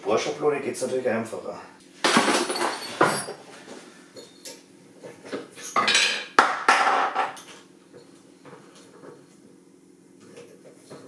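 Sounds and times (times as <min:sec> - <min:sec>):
metal tools clattering on workbench: 0:02.0 - 0:03.5, 0:05.6 - 0:07.6.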